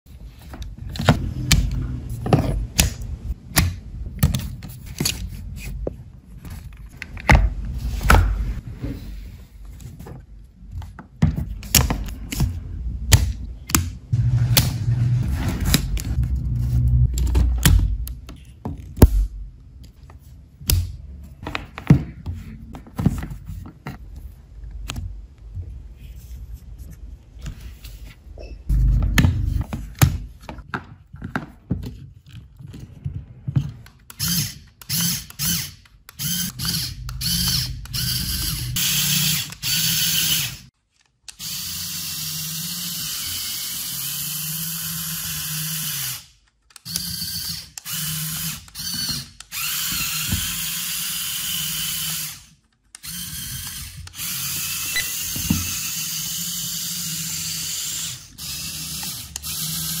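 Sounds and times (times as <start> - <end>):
toy electric motors whirring: 34.1 - 40.7, 41.3 - 60.0.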